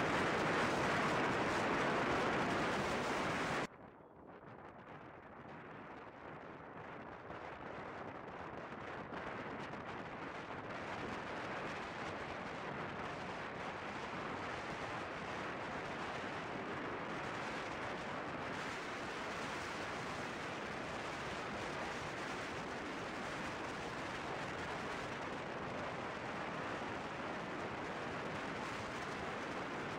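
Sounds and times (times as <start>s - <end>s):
wind buffeting microphone: 0.0s - 3.7s.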